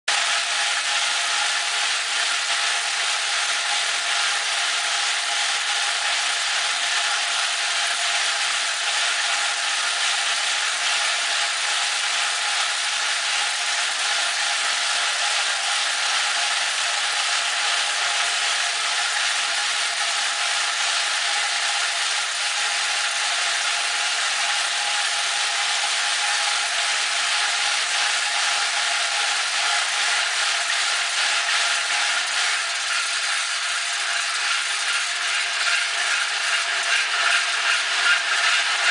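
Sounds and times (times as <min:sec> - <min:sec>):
splitting machine running: 0:28.7 - 0:38.9.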